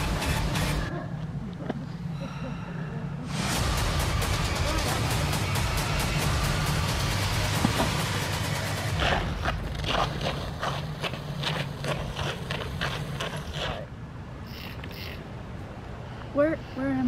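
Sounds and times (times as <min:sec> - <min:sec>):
running footsteps: 0:05.7 - 0:13.9.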